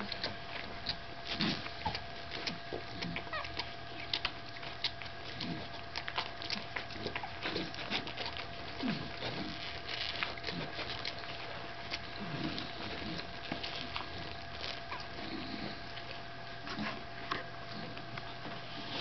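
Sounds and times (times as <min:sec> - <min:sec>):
puppies suckling: 0:00.0 - 0:19.0
puppies squeaking and whimpering: 0:01.8 - 0:02.1, 0:03.0 - 0:04.3, 0:14.6 - 0:15.9.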